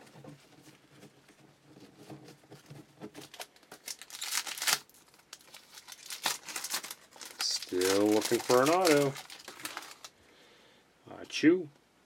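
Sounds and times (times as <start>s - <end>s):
foil wrapper crinkling: 2.6s - 10.2s.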